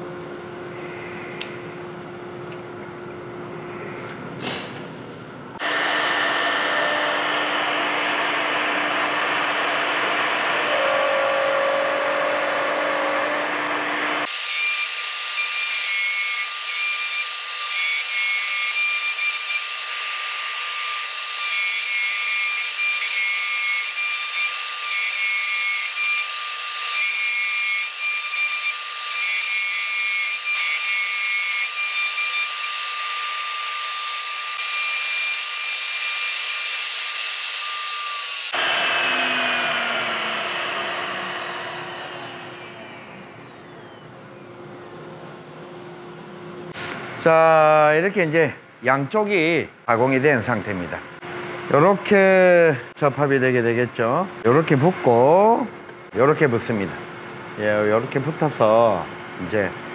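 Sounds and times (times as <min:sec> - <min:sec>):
dust extraction hose drawing air: 0:04.4 - 0:26.4, 0:37.6 - 0:44.3
router spindle boring wood: 0:05.6 - 0:44.9.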